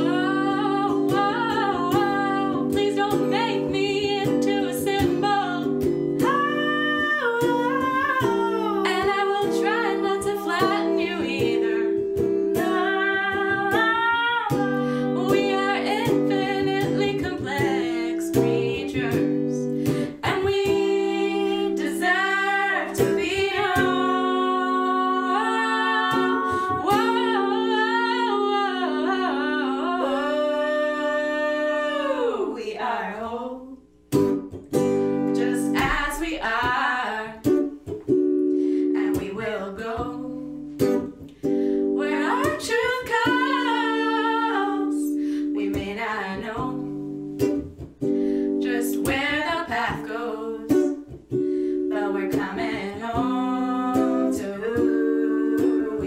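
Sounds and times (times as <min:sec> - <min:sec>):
strummed electric guitar: 0:00.0 - 0:30.0
women singing: 0:00.0 - 0:33.8, 0:35.3 - 0:37.7, 0:38.8 - 0:41.2, 0:41.8 - 0:47.1, 0:48.5 - 0:51.2, 0:51.8 - 0:56.0.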